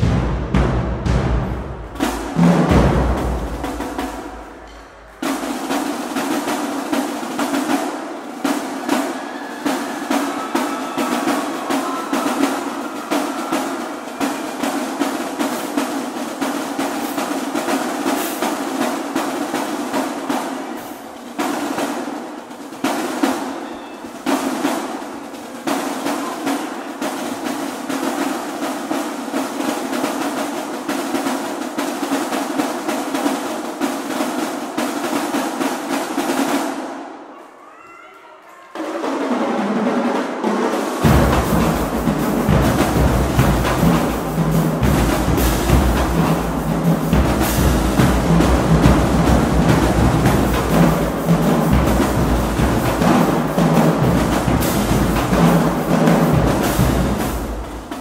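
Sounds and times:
snare drums: 0.0s - 37.8s, 38.7s - 58.0s
tenor drums: 0.0s - 37.8s, 38.7s - 58.0s
bass drums: 41.0s - 57.3s.

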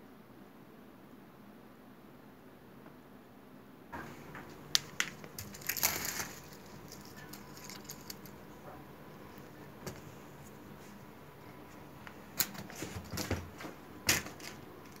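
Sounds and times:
short dry crackle: 4.2s - 8.4s.

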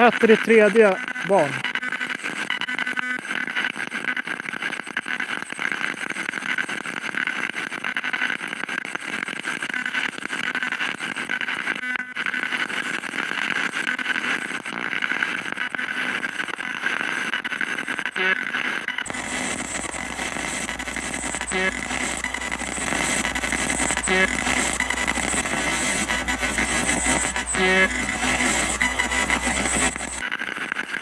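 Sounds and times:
radio static hiss: 0.0s - 31.0s
low hum: 19.0s - 30.2s.

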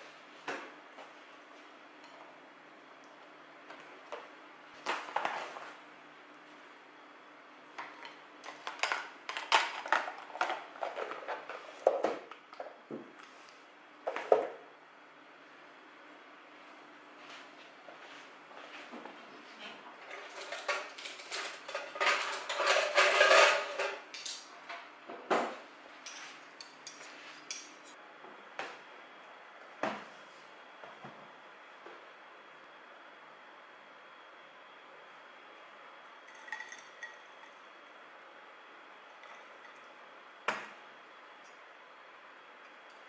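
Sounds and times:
dishes and cutlery clinking: 20.1s - 24.5s.

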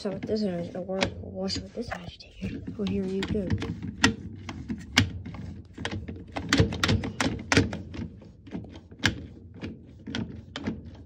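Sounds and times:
washing machine knocking and clunking: 0.0s - 11.0s.

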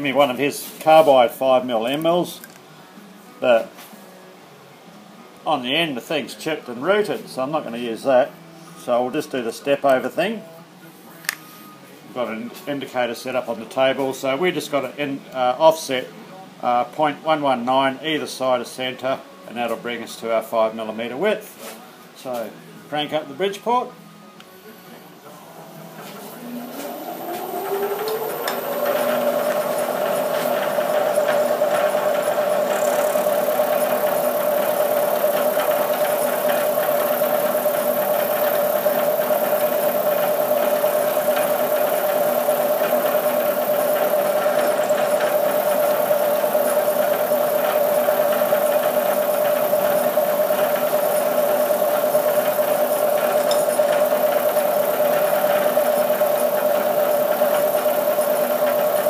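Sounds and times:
milling machine spindle whine: 25.8s - 59.0s
drill cutting metal: 27.2s - 59.0s.

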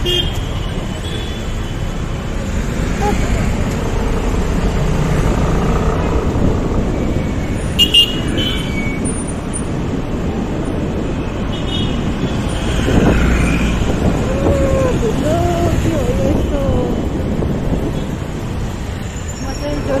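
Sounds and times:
motorcycle engine and road rumble: 0.0s - 20.0s
vehicle horn beeps: 7.8s - 9.0s.

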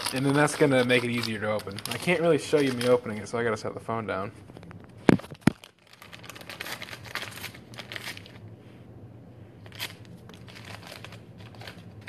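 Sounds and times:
paper packet tearing open: 0.0s - 3.4s, 5.2s - 8.4s, 9.6s - 12.0s
sharp paper crackle: 0.0s - 3.4s, 5.1s - 8.4s, 9.6s - 12.0s
paper packet rustling: 0.0s - 3.6s, 4.6s - 8.4s, 9.6s - 12.0s.

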